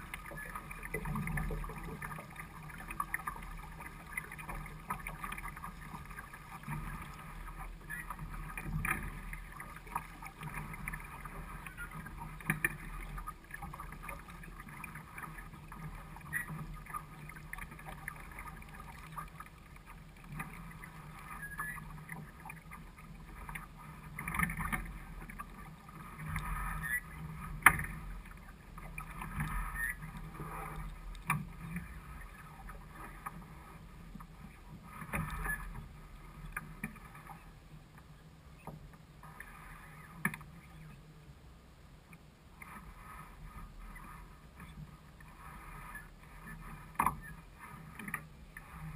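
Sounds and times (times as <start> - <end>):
water rushing along boat hull: 0.0 - 48.9
small knocks and clicks: 27.6 - 28.0.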